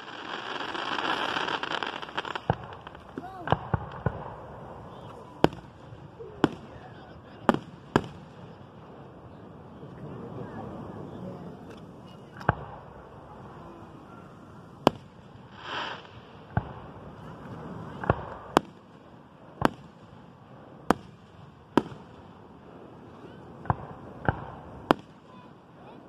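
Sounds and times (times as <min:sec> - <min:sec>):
firework shells booming: 0:00.0 - 0:08.8, 0:11.7 - 0:13.5, 0:14.2 - 0:22.5, 0:23.5 - 0:25.3.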